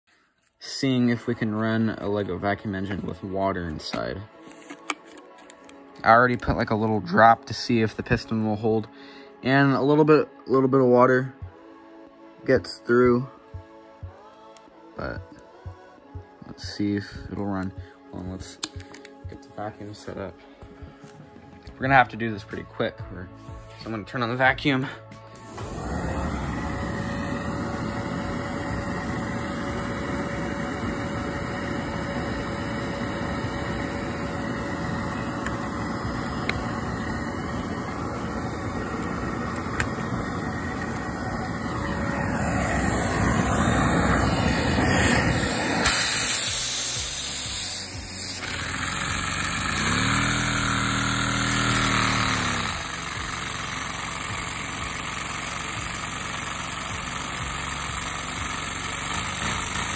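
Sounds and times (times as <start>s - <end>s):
vacuum cleaner running: 24.8s - 59.9s.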